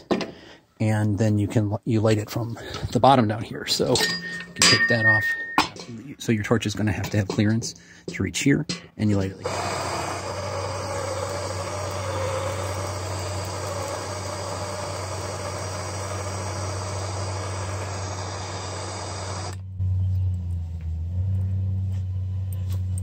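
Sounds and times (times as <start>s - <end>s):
torch flame hissing: 9.4s - 19.6s.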